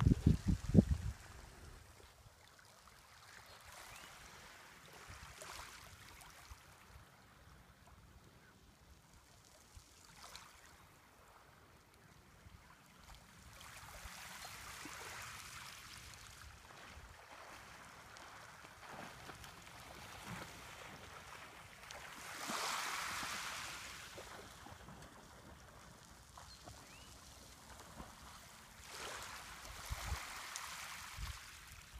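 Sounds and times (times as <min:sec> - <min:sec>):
waves washing over pebbles: 0:16.8 - 0:31.9.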